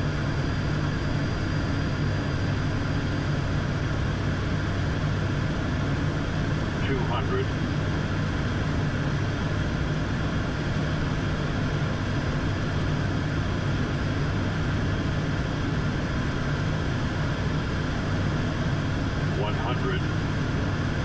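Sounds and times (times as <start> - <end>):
propeller engines droning: 0.0 - 21.0.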